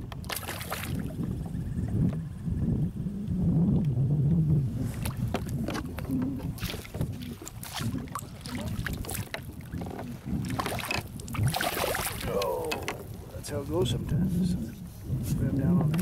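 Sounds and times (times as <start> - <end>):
water splashing against kayak: 0.0 - 2.0, 4.6 - 16.0
wind rumble on microphone: 0.0 - 16.0.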